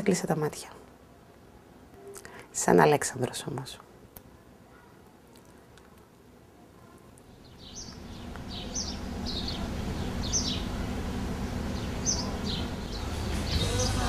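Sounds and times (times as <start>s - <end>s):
small birds chirping: 6.8s - 14.0s
steady low rumble: 7.4s - 14.0s.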